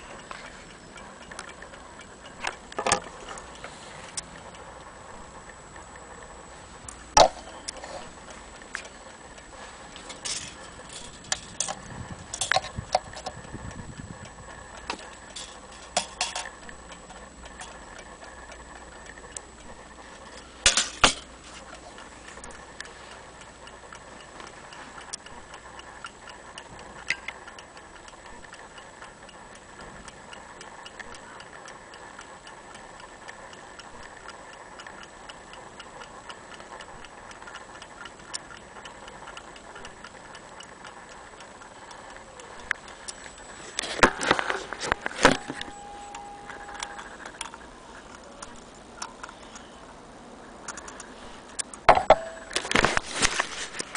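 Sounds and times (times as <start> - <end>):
clock ticking: 0.0 - 6.3, 10.2 - 44.2, 50.6 - 52.6.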